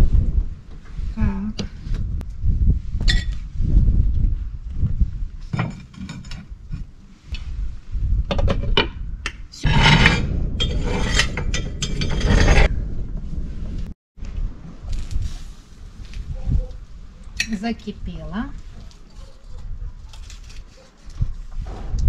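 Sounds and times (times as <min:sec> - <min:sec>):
utensil scraping metal frying pan: 0:09.6 - 0:12.7.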